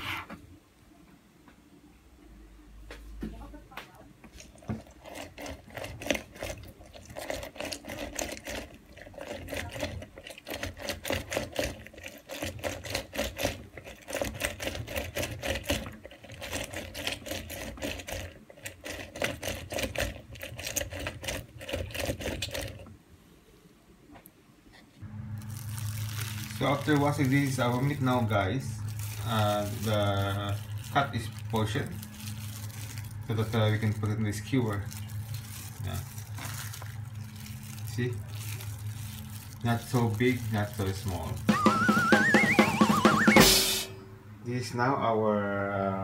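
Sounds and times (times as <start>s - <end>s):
wet squelching of juice: 4.2s - 22.9s, 25.4s - 43.4s
lemon scraping on hand juicer: 4.3s - 22.9s, 25.3s - 43.5s.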